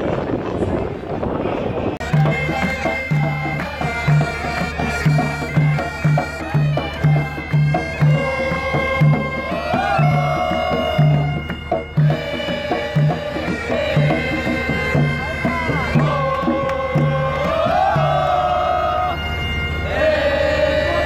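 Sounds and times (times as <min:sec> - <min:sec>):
barrel drum beating: 0:02.0 - 0:18.5
bagpipes playing folk melody: 0:02.0 - 0:21.0.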